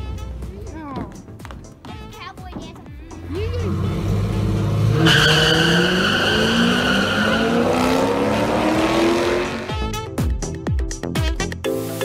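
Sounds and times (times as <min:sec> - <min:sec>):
car engines revving: 0:03.1 - 0:09.9
tyre squeal: 0:04.9 - 0:08.2.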